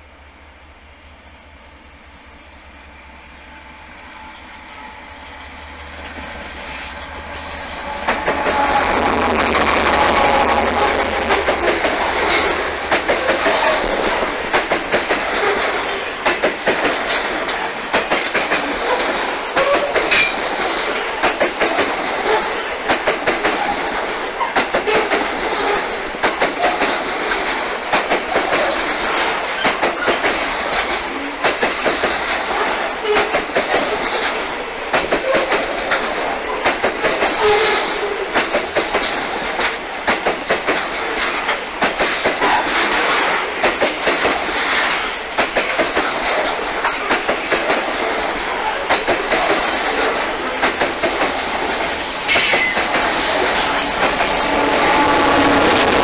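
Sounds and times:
train wheels clickety-clack on rails: 0:05.4 - 0:56.0.

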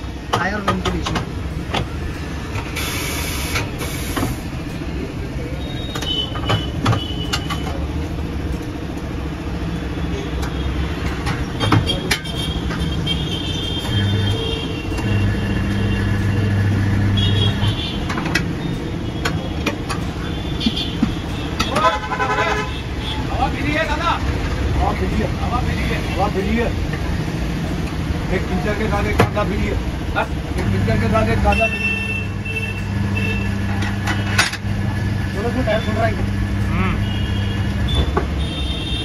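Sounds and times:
low rumble of traffic: 0:00.0 - 0:39.0
compressed air hiss: 0:02.8 - 0:04.5.

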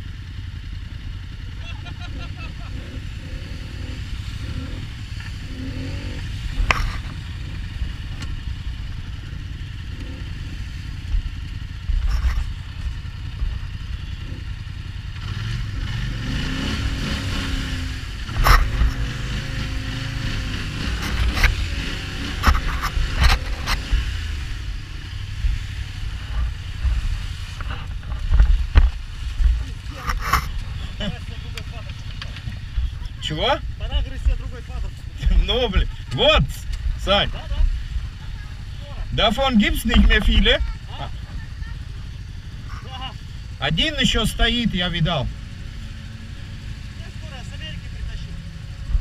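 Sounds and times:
off-road vehicle engine: 0:00.0 - 0:49.0
sharp knocks and clatters: 0:18.3 - 0:19.2, 0:22.3 - 0:24.0.

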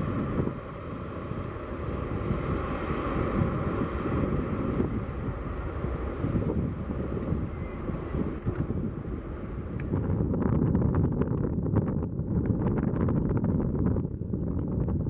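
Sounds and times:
jet engines running: 0:00.0 - 0:10.4
wind rumble on microphone: 0:00.0 - 0:15.0.

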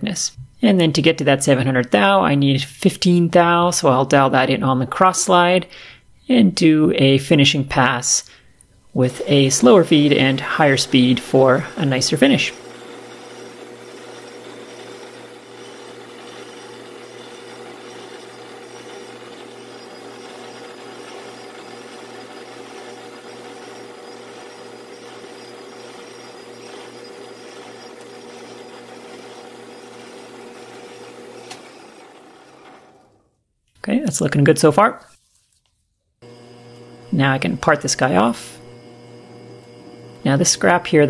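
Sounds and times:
lathe tool cutting: 0:09.0 - 0:33.2, 0:36.2 - 0:41.0
metal lathe running: 0:09.0 - 0:33.2, 0:36.2 - 0:41.0.

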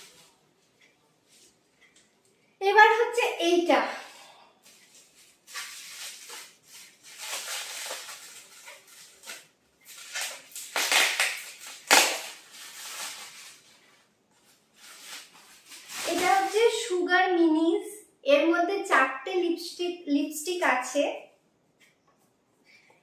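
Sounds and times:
plastic wrapping crinkling: 0:04.6 - 0:17.0.

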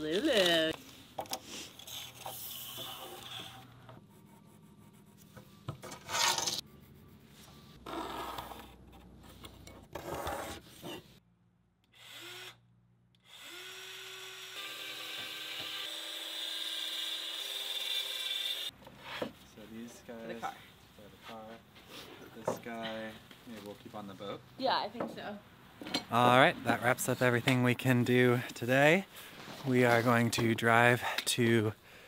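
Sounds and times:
hand tools rubbing and knocking on wood: 0:18.8 - 0:19.5.

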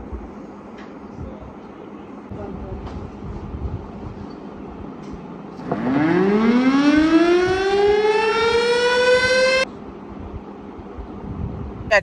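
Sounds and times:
motor-driven siren winding up: 0:05.6 - 0:09.6.

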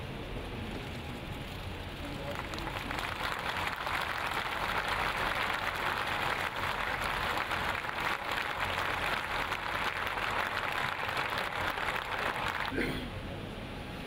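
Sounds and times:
crowd applauding: 0:02.0 - 0:12.8.

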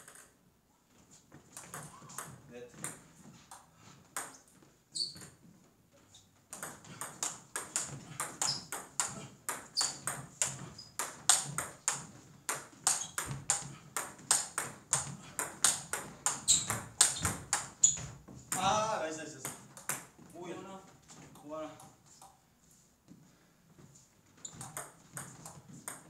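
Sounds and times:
table tennis ball hits: 0:00.0 - 0:00.3, 0:01.5 - 0:04.4, 0:06.5 - 0:20.2, 0:24.4 - 0:26.0.

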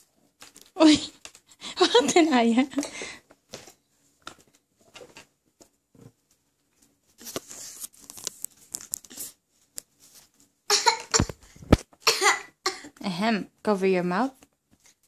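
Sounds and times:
handling rubs on microphone: 0:07.1 - 0:10.4.

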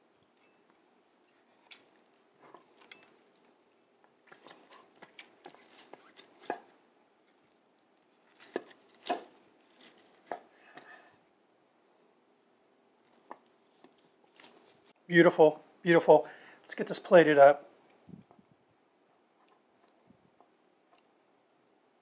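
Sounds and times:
knife scraping on cutting board: 0:09.9 - 0:11.2.

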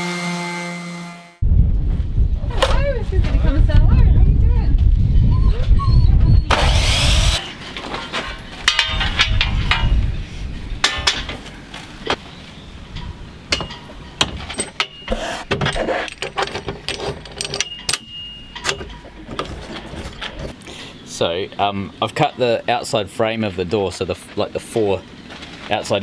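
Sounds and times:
mitre saw cutting metal: 0:06.5 - 0:07.6
metallic clinks and clicks: 0:16.0 - 0:19.0.

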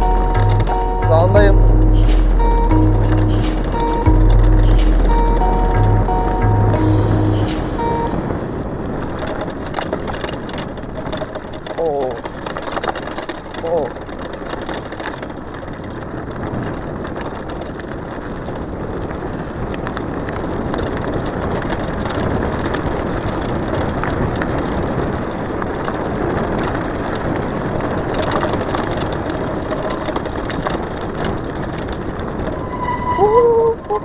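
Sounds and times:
bike tyres rolling on loose stones: 0:00.0 - 0:01.4, 0:08.1 - 0:34.0
air rushing past: 0:00.0 - 0:09.2, 0:32.4 - 0:33.8
stones and bike rattling: 0:08.0 - 0:34.0.

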